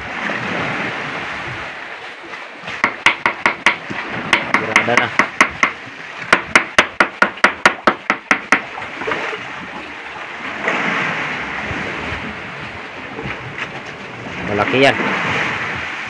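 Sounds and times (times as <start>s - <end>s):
sea water rushing: 0.0s - 16.0s
rapid even knocking: 2.8s - 8.7s.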